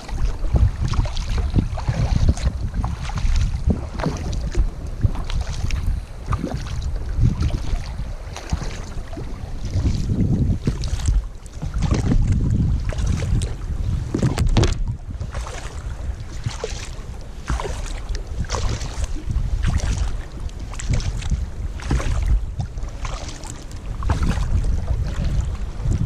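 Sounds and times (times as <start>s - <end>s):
paddle splashing in water: 0.0s - 26.0s
wind rumble on microphone: 0.0s - 26.0s.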